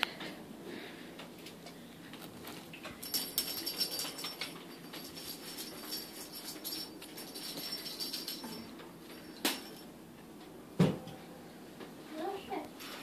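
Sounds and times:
plastic bags rustling and crinkling: 0:02.0 - 0:08.6.

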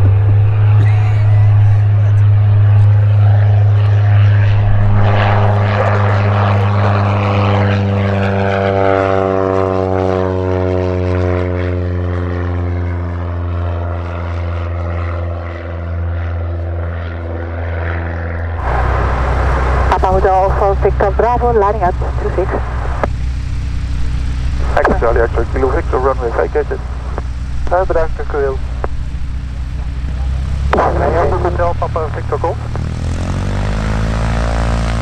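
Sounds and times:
propeller plane flying past: 0:00.0 - 0:35.0.

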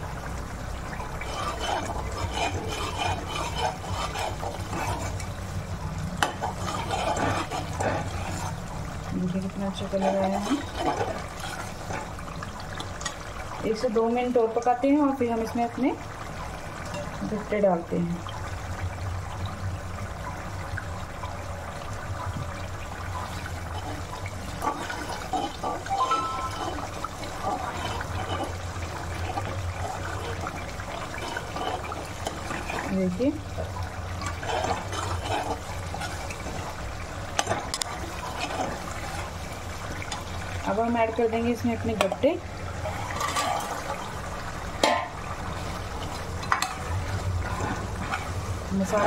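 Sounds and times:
masala sizzling and bubbling: 0:00.0 - 0:49.0
spoon scraping a pan: 0:01.2 - 0:05.3, 0:06.2 - 0:08.6, 0:09.8 - 0:12.1, 0:23.7 - 0:32.9, 0:34.2 - 0:36.8, 0:42.9 - 0:44.0.

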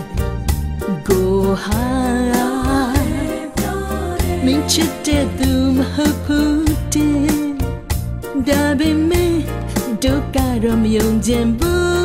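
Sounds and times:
bass and drums: 0:00.0 - 0:12.0
person singing melody: 0:00.8 - 0:07.7.

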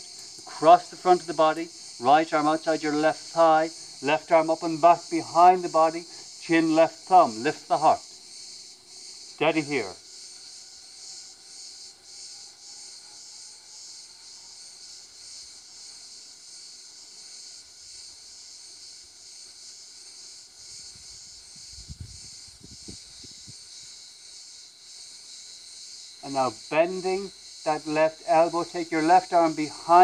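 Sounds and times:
insects chorus shrilling: 0:00.0 - 0:30.0.

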